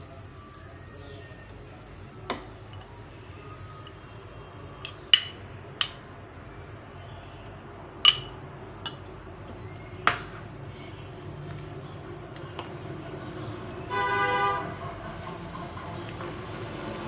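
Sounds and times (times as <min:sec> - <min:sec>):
metal spoon clinking against bowl: 0:02.3 - 0:02.9, 0:04.8 - 0:06.0, 0:08.0 - 0:09.1.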